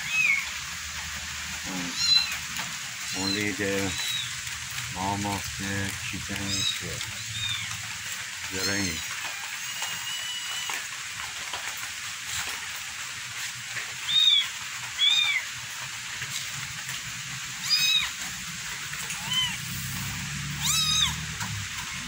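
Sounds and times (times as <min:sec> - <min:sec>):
rain falling: 0:00.0 - 0:22.0
kittens meowing: 0:01.7 - 0:02.5, 0:03.1 - 0:04.4, 0:06.2 - 0:07.9, 0:08.5 - 0:10.8, 0:17.6 - 0:18.2, 0:19.0 - 0:22.0.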